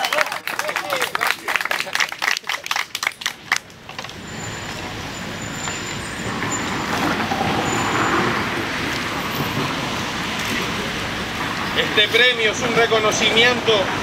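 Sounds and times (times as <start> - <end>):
hand clapping: 0.0 - 3.6
passing road traffic: 0.0 - 14.0.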